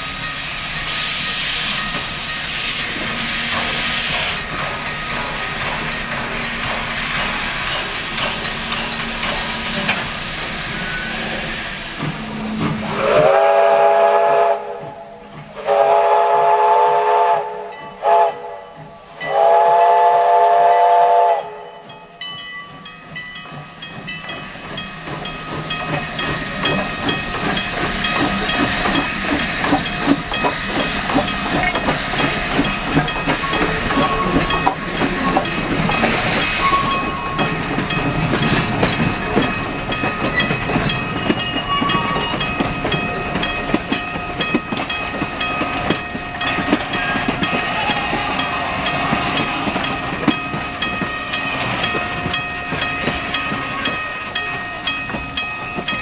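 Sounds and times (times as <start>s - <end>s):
steam hissing: 0.0s - 21.6s, 23.0s - 54.5s
steam locomotive exhaust: 0.0s - 22.2s, 23.0s - 56.0s
train wheels clicking on rail joints: 0.0s - 56.0s
crossing signal bell ringing: 21.5s - 56.0s.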